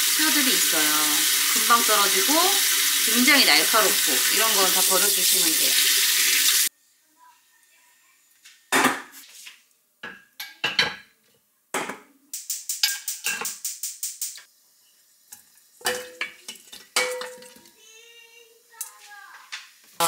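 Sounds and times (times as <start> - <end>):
pots and utensils clinking: 10.0 - 11.1, 12.7 - 13.6, 14.9 - 17.7.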